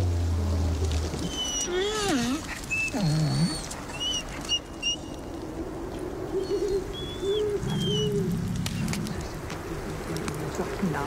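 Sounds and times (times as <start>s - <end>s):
dogs whimpering and whining: 1.0s - 5.2s, 6.3s - 8.9s
dog growling low: 1.7s - 3.8s, 7.4s - 9.4s.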